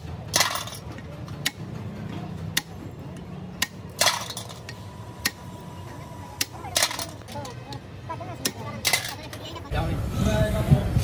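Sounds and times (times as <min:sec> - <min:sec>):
springs clattering on metal: 0:00.0 - 0:02.6.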